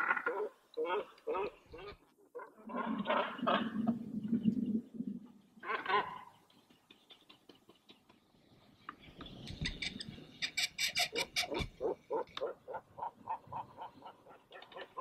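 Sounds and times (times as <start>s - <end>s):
cormorants croaking: 0.0s - 4.8s, 5.6s - 6.5s, 9.7s - 15.0s.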